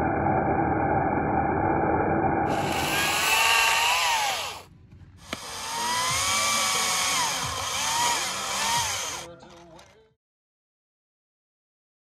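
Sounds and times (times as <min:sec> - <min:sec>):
chainsaw cutting log: 0:02.5 - 0:09.3
chainsaw starting click: 0:05.2 - 0:09.3.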